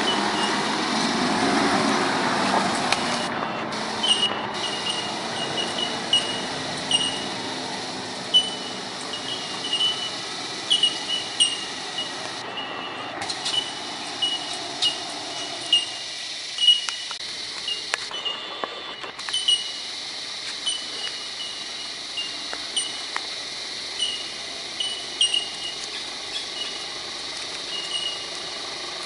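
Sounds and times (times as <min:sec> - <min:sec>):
truck engine climbing: 0:00.0 - 0:29.0
short high chirps: 0:04.0 - 0:07.2.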